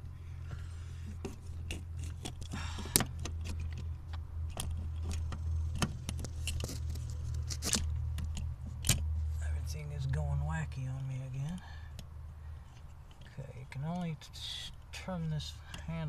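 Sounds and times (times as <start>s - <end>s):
air compressor humming: 2.5s - 3.3s.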